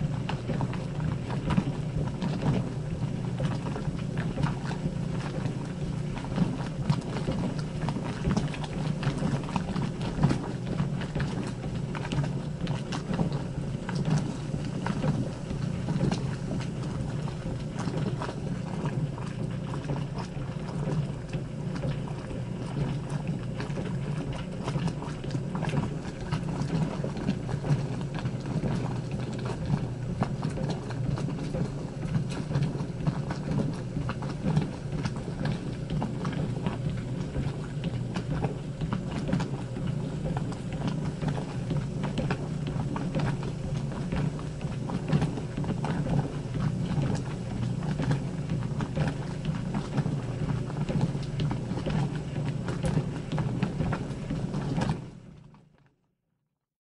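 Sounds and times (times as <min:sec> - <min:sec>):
washing machine rumbling: 0:00.0 - 0:55.8.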